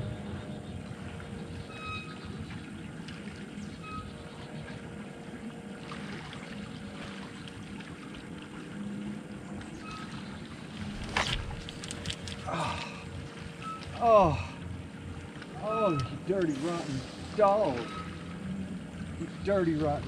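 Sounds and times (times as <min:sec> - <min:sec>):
faint steady hum: 0:00.0 - 0:20.0
small waves lapping against hull: 0:00.0 - 0:20.0
fishing rod swish and thump: 0:10.9 - 0:12.4.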